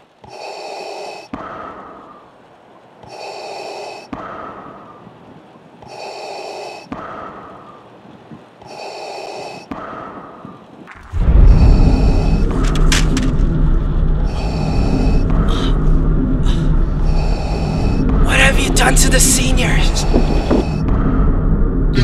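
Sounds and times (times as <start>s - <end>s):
mechanical respirator breathing: 14.0s - 18.2s.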